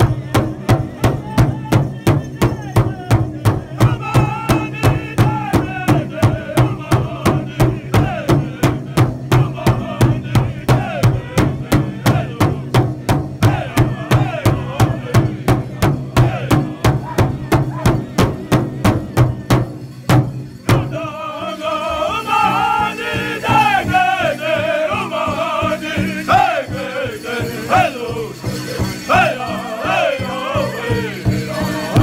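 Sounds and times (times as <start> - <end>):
large drum beating: 0.0 - 21.2
group singing in high voices: 3.4 - 17.8, 20.6 - 32.0.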